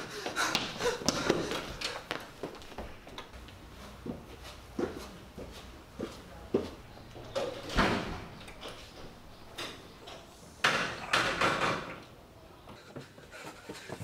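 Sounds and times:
footsteps: 0.0s - 7.6s, 12.7s - 14.0s.

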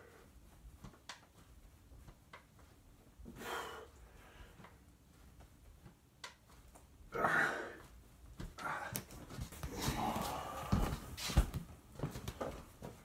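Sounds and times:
person breathing hard: 3.2s - 4.8s, 7.1s - 8.0s, 9.7s - 11.5s.

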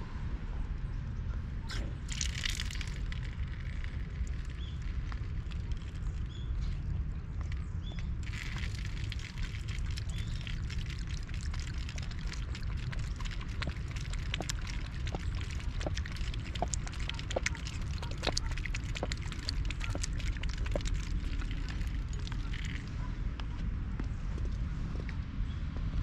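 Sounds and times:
small clicks and drips: 1.7s - 23.0s
water splashing on metal grate: 2.0s - 6.1s, 8.2s - 22.8s
cat lapping water: 2.0s - 6.4s, 8.2s - 22.9s.

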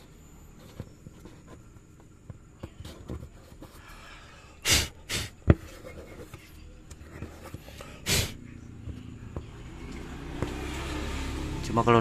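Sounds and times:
breathy puffs: 7.6s - 8.4s.

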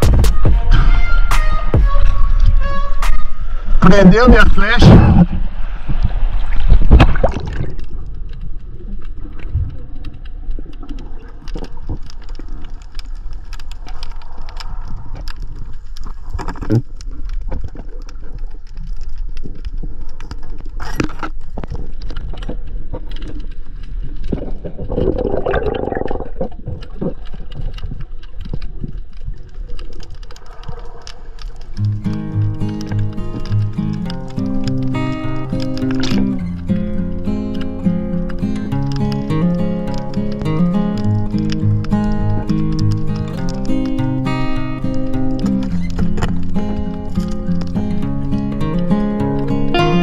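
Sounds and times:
water rushing: 0.0s - 19.0s, 23.1s - 50.0s
small clicks underwater: 6.0s - 49.8s
muffled underwater gurgling: 24.3s - 27.7s.

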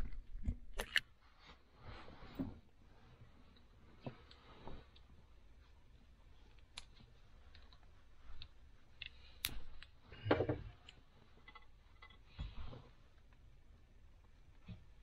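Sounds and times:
light clicks and taps from handling parts: 3.5s - 13.5s.

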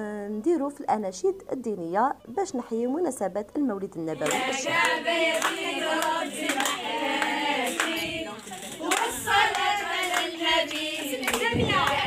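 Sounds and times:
group of voices singing: 4.2s - 12.0s
hand claps: 4.2s - 12.0s.

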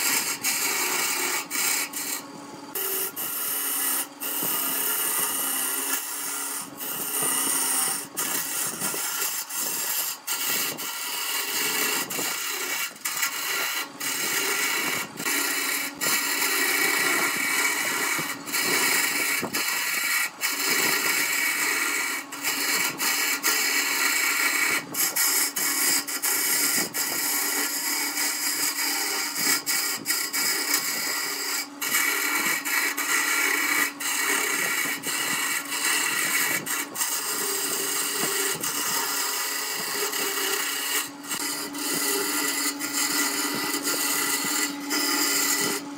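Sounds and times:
wood lathe turning tool scraping: 0.0s - 45.9s.

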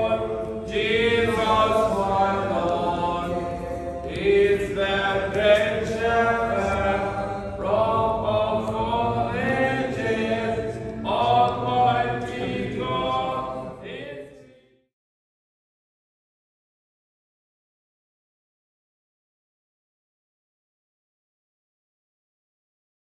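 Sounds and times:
men chanting: 0.0s - 14.6s.

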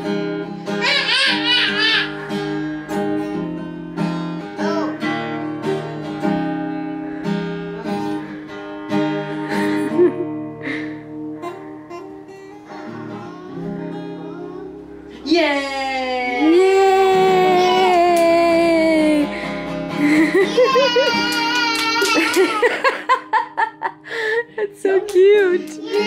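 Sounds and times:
acoustic guitar strumming: 0.0s - 26.0s
baby squealing: 0.8s - 2.3s, 20.4s - 22.6s.

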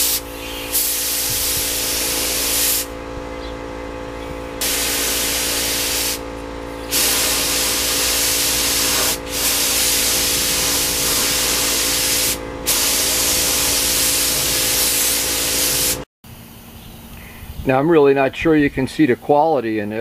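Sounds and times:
paint spray gun hissing: 0.0s - 2.9s, 4.6s - 16.1s
steady hum: 0.0s - 17.3s.

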